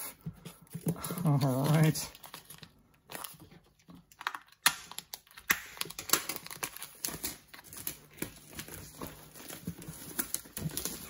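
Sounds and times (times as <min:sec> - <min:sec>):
plastic wrap crackling: 0:00.6 - 0:11.0.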